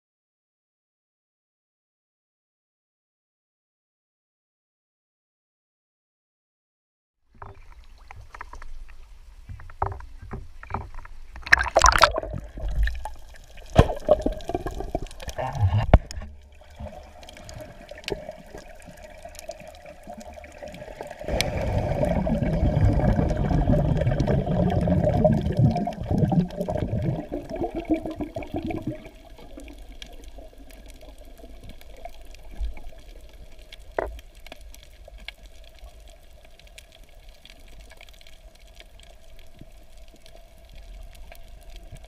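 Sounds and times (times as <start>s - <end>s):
muffled underwater rush and bubbles: 7.4s - 42.0s
water sloshing and splashing: 7.4s - 42.0s.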